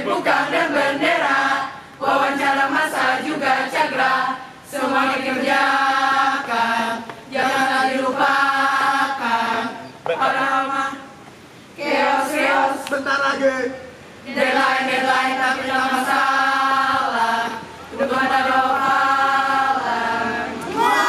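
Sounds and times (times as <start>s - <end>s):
group chanting a cheer: 14.3s - 21.0s.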